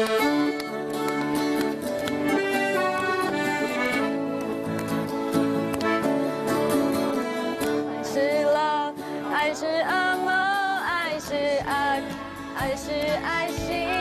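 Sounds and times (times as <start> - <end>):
accordion and acoustic guitar: 0.0 - 14.0
people singing: 9.0 - 14.0.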